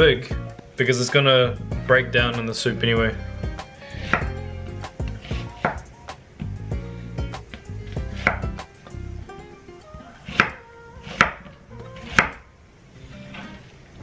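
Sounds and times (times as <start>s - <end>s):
knife chopping onion on wooden board: 4.0s - 6.0s, 7.4s - 8.7s, 10.2s - 11.4s, 12.0s - 12.4s.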